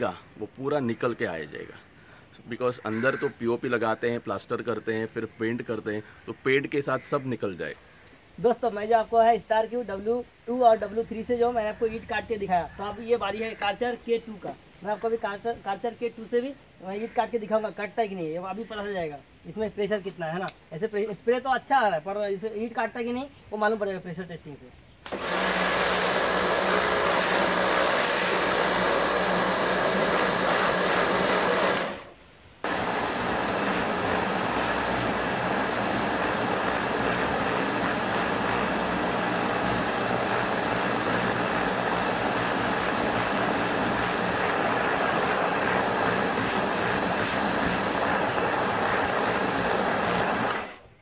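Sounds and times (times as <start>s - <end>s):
pressure washer spraying: 25.0s - 50.9s.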